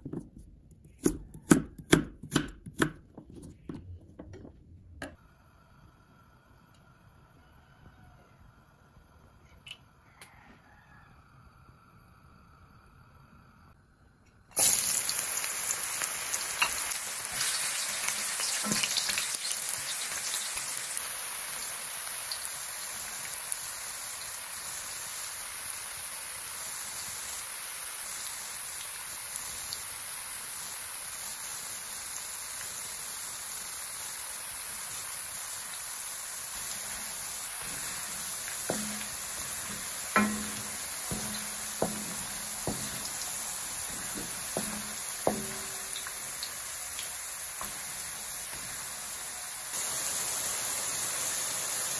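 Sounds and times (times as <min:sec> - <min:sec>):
food sizzling in hot oil: 0:14.5 - 0:51.9
wooden spatula knocks: 0:37.6 - 0:46.3.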